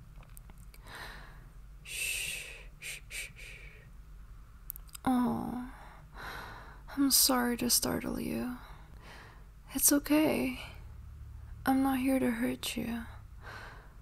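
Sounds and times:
woman breathing: 0.8s - 3.9s, 5.6s - 6.9s, 8.5s - 9.6s, 13.1s - 14.0s.

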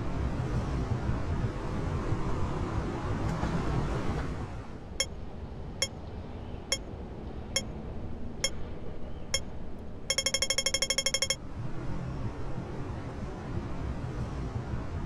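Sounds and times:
crossing signal beeping: 10.1s - 11.4s.

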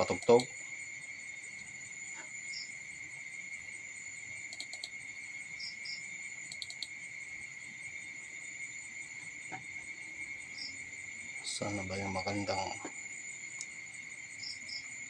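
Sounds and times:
night insects trilling: 0.0s - 15.0s
sharp clicks: 4.5s - 4.9s, 6.5s - 6.9s.

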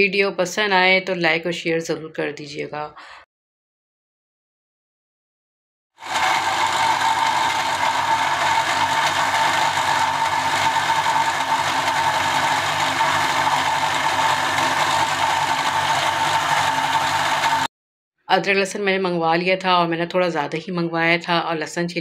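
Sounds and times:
blender motor grinding: 6.0s - 17.7s.

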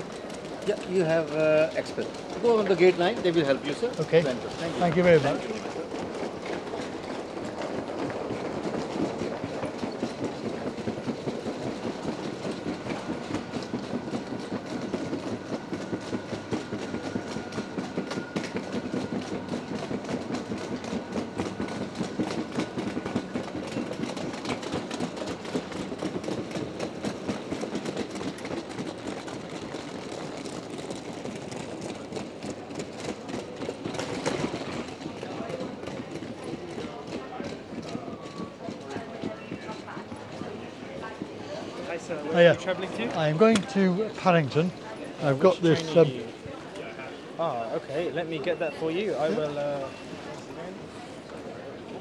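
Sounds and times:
wheels rattling over tiled floor: 0.0s - 40.8s.

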